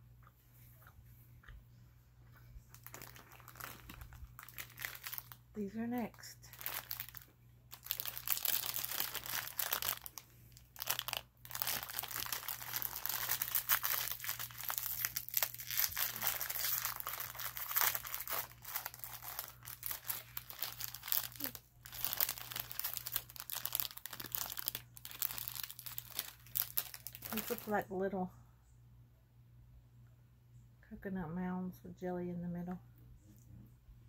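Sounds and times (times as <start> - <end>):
plastic wrapper crinkling and tearing: 2.7 - 27.8.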